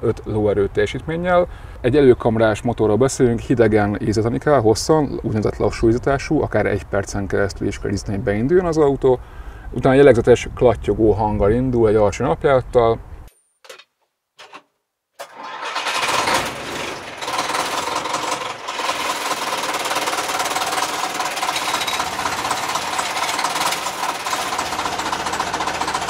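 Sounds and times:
diesel engine starting and idling: 0:15.2 - 0:26.0.

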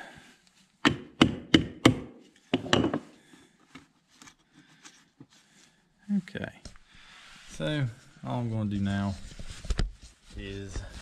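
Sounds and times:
knocks on plywood board: 0:00.8 - 0:03.0.

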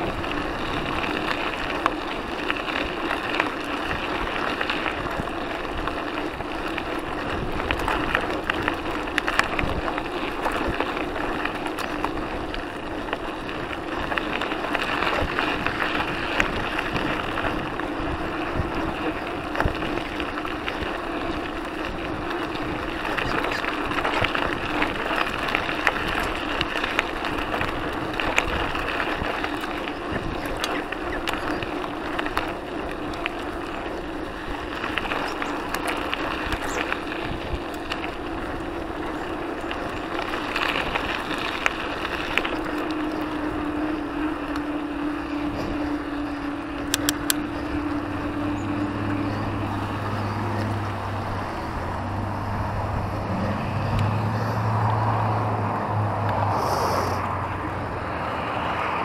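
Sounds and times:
bike and camera rattling: 0:00.0 - 0:59.0
bike tyres crunching on gravel: 0:00.0 - 0:59.0
steady rushing noise: 0:00.0 - 0:59.0
humming tone: 0:42.8 - 0:51.4.

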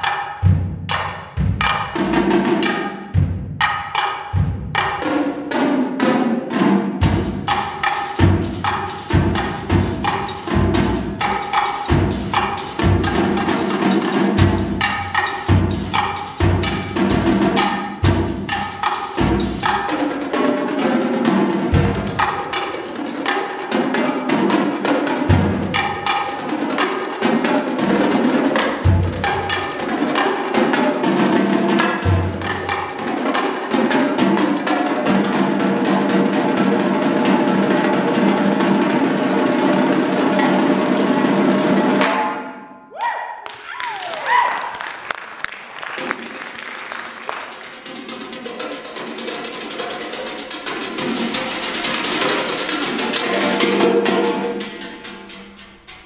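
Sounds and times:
marching tenor drums: 0:00.4 - 0:42.1, 0:47.4 - 0:56.0.

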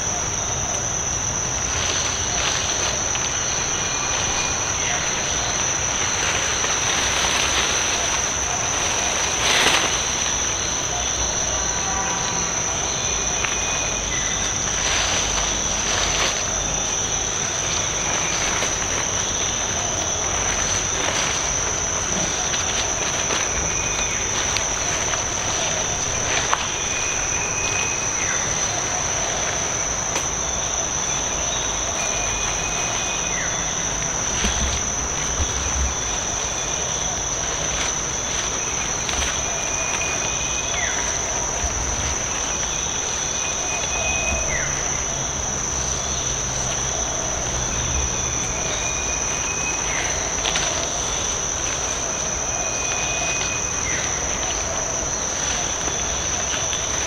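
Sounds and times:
insects droning: 0:00.0 - 0:57.0.

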